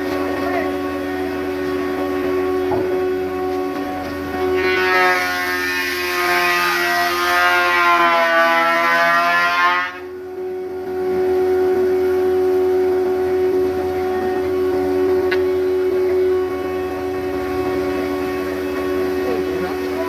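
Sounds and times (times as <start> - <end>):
thickness planer whining: 0.0 - 20.0
cutterhead planing wood plank: 4.4 - 10.0.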